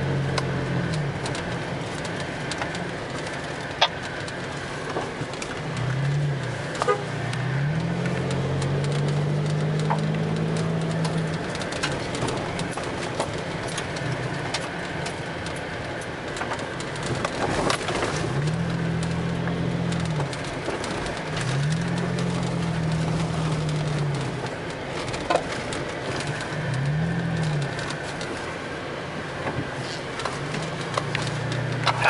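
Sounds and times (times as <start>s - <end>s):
road noise: 0.0s - 32.0s
engine revving: 5.6s - 13.0s, 17.4s - 28.4s, 30.3s - 32.0s.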